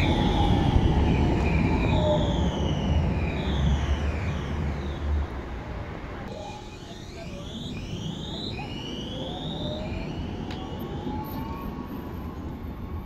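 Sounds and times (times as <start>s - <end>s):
tram motors whining: 0.0s - 5.4s, 6.2s - 13.0s.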